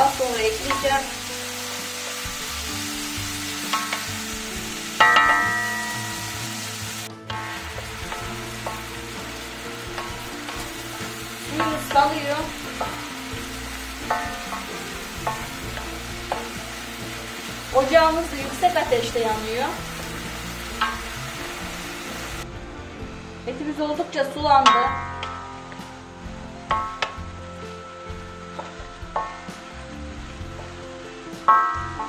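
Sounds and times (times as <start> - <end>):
beef sizzling in a pan: 0.0 - 22.5.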